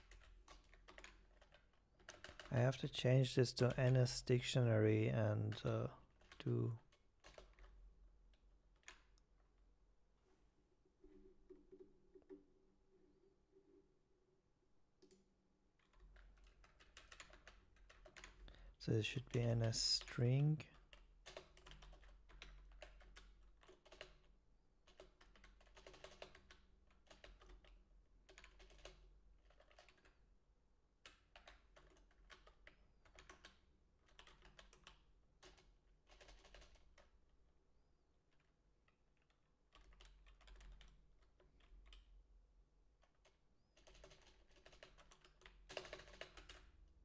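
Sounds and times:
faint keyboard typing: 0.0s - 4.3s, 5.2s - 9.2s, 15.8s - 30.2s, 31.0s - 37.2s, 38.3s - 42.2s, 42.9s - 46.8s.

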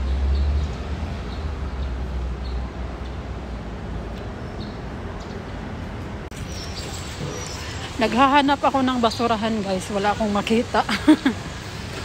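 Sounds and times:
low traffic rumble: 0.0s - 12.0s.

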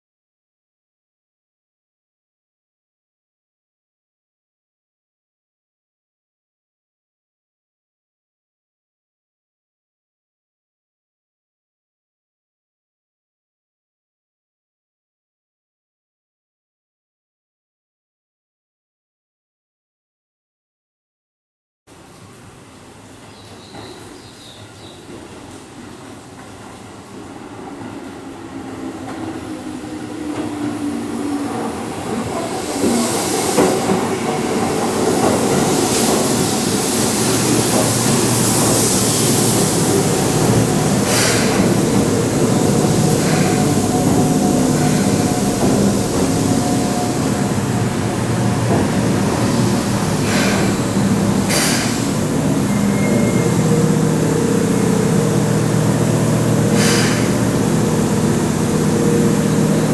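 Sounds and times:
electric train pulling in: 22.4s - 59.9s.

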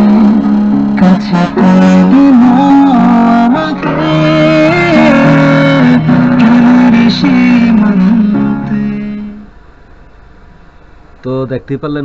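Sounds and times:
guitar music from television speaker: 0.0s - 9.4s.

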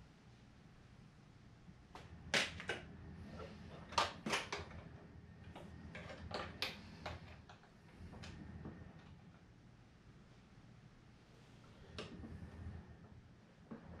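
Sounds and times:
small hard parts clicking and tapping: 2.0s - 9.2s.

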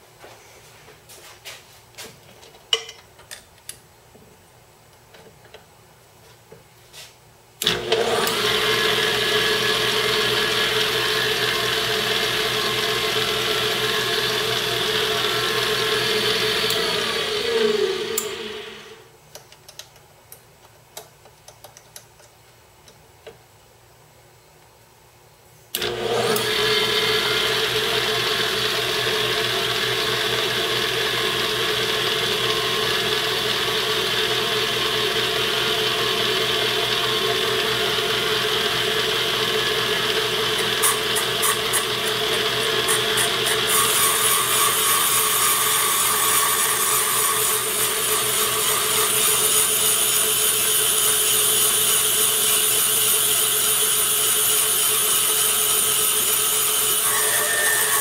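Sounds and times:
grinding machine motor whine: 7.6s - 19.0s, 25.8s - 58.0s.

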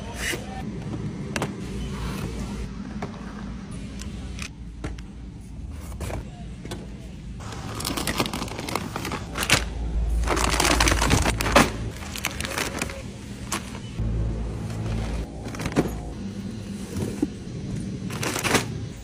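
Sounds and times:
plastic snack bags rustling: 7.4s - 14.0s, 18.1s - 19.0s.

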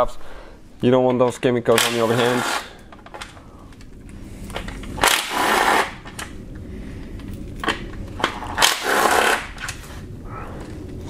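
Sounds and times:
cordless power tool spinning: 4.8s - 6.2s, 8.5s - 9.7s.

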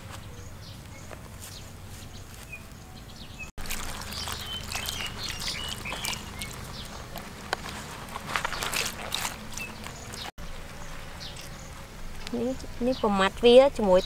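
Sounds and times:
birds chirping: 0.0s - 14.0s
water pouring and splashing: 3.6s - 10.3s
hand scrubbing on a crackling leaf: 3.6s - 10.4s.

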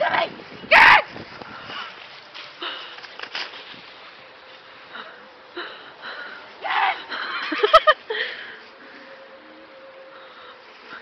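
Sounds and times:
dry leaves rustling and crunching: 0.0s - 5.5s.

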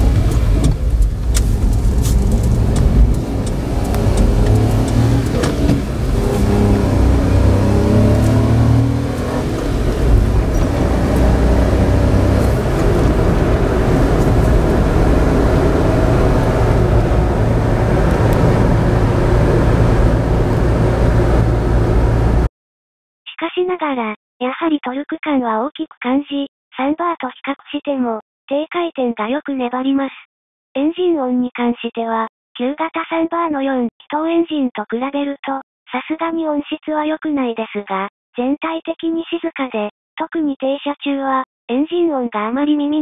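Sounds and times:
road noise: 0.0s - 22.5s
truck engine accelerating: 0.0s - 22.5s.

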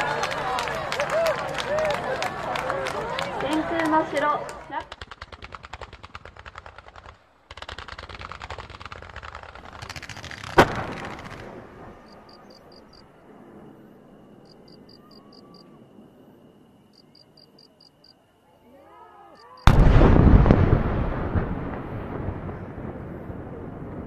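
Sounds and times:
firecrackers crackling: 0.0s - 13.6s, 19.6s - 24.0s
loud firecracker bang: 9.8s - 12.0s, 19.6s - 24.0s.

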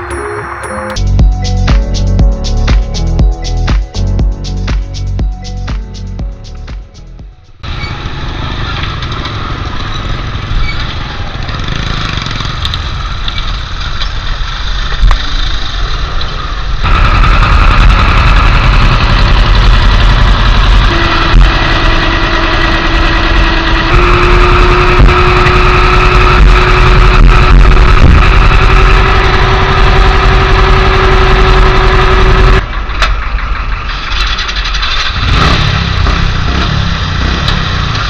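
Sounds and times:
ferry engine rumble: 0.0s - 38.0s
motorcycle engines running: 7.6s - 38.0s.

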